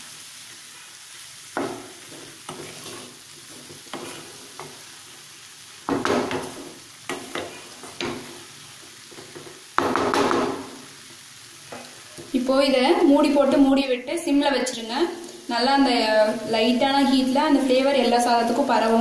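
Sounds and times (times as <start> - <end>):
food sizzling: 0.0 - 19.0
spatula scraping a pan: 1.6 - 5.1, 5.9 - 8.5.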